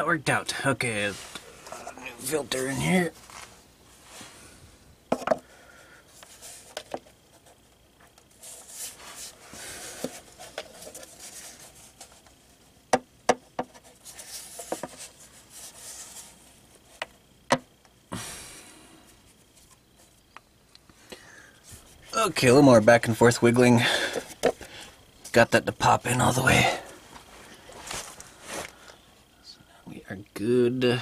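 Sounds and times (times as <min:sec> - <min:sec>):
filter rubbing and scraping: 0:01.0 - 0:04.4, 0:06.2 - 0:12.7, 0:13.6 - 0:17.1.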